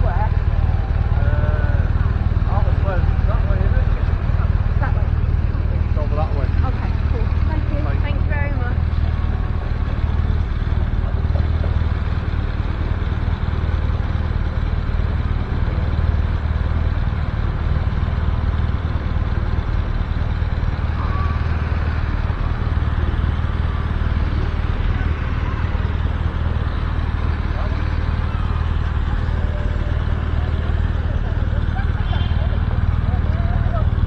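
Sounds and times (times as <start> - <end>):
street noise: 0.0 - 34.0
vehicle engine idling: 0.0 - 34.0
faint distant voices: 20.6 - 34.0.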